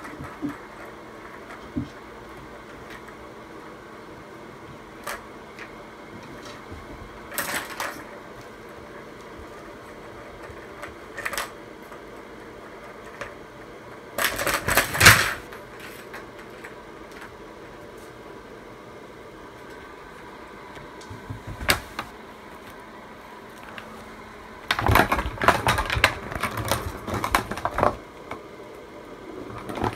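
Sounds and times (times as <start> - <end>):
plastic balls clattering in tracks: 6.3 - 8.2, 9.4 - 17.4, 24.6 - 28.4, 29.4 - 29.9.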